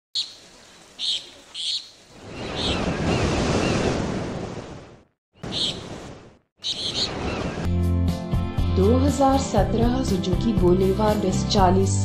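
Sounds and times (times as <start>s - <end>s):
ocean wave surging and washing back: 2.1s - 6.4s.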